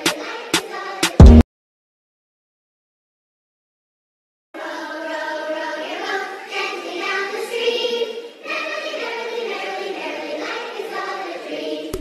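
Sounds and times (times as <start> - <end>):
music with sharp drum hits: 0.0 - 1.4.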